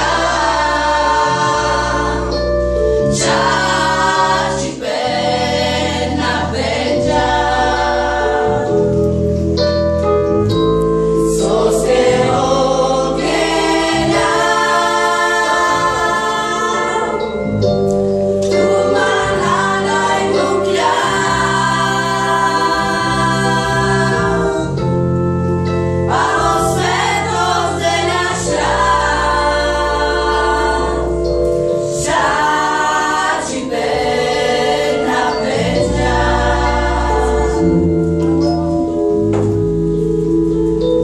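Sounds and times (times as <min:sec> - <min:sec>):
women and girls singing: 0:00.0 - 0:02.4, 0:03.2 - 0:08.7, 0:11.4 - 0:17.4, 0:18.4 - 0:24.7, 0:26.1 - 0:31.2, 0:31.9 - 0:38.0
keyboard held chords: 0:00.0 - 0:41.0.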